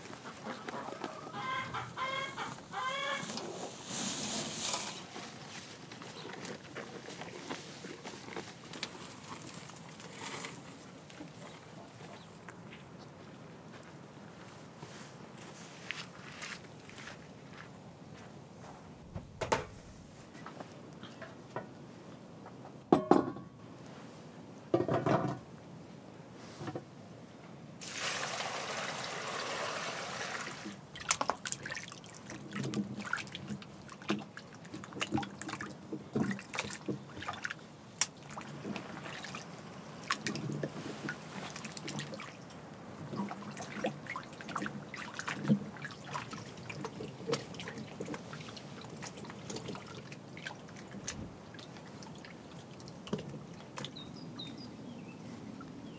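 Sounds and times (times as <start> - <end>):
liquid pouring: 27.8 - 30.6
small wet clicks and taps: 31.0 - 38.9, 50.9 - 54.0.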